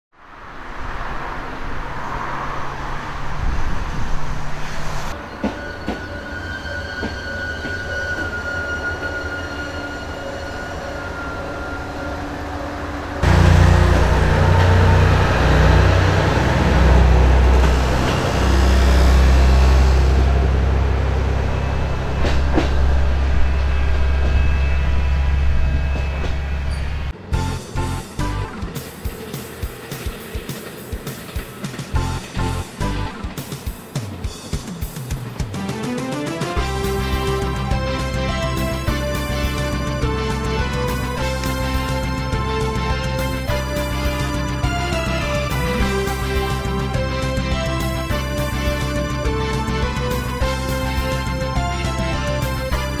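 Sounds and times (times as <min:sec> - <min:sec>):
high steady squeal: 0:04.1 - 0:27.2
diesel engine running: 0:13.2 - 0:29.2.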